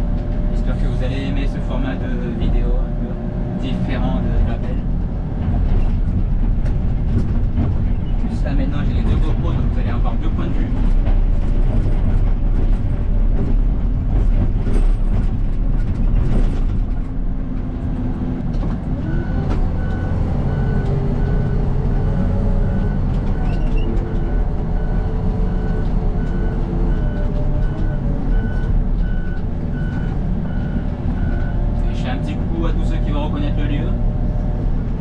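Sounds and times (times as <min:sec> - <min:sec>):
diesel engine running: 0:00.0 - 0:35.0
reversing alarm beeping: 0:19.1 - 0:31.6.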